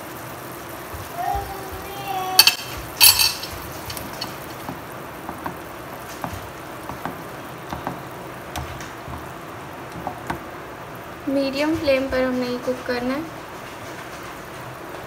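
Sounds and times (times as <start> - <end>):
food sizzling in frying pan: 0.0 - 15.0
sharp clatter: 2.4 - 4.8
spatula scraping and tapping pan: 2.4 - 10.4.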